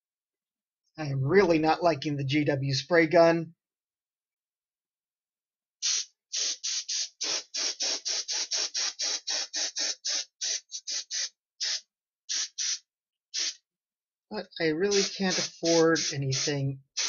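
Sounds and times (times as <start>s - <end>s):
spray gun hissing: 5.8s - 12.8s, 13.4s - 13.6s, 14.8s - 17.0s.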